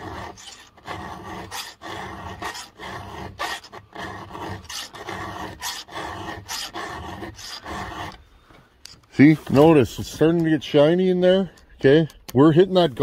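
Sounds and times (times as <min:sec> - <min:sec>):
file rasping on saw chain: 0:00.0 - 0:08.2.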